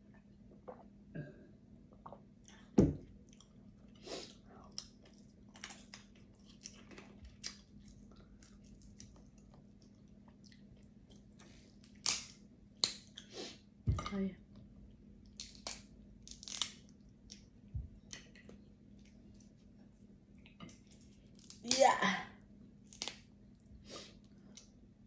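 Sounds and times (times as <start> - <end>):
person chewing: 3.2 - 13.3
crab shell cracking: 11.9 - 13.1, 15.3 - 17.4, 22.9 - 23.2.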